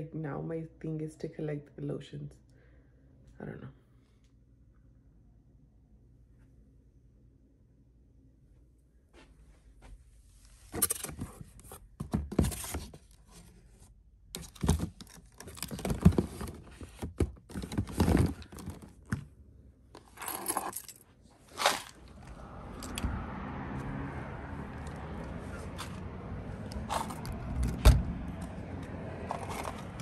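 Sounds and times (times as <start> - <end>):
outdoor background noise: 0.0 - 30.0
plastic bottles clattering: 14.4 - 19.2.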